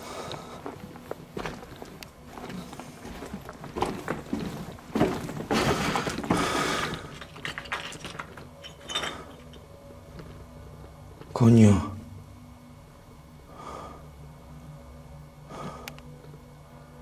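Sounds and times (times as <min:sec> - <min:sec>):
footsteps on stony ground: 0:00.0 - 0:07.7.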